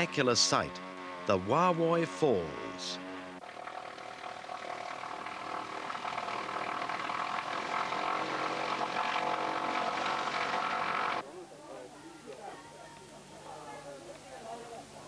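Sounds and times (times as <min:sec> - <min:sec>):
light aircraft engine droning: 0:00.0 - 0:11.2.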